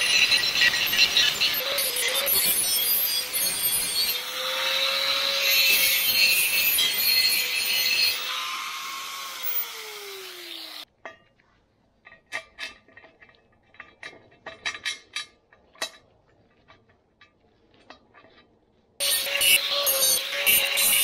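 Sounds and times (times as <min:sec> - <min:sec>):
angle grinder grinding steel: 0:00.0 - 0:10.9, 0:19.0 - 0:21.0.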